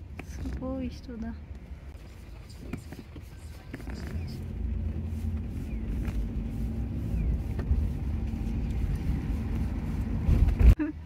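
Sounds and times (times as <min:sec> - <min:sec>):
car cabin engine and road rumble: 0:00.0 - 0:11.0.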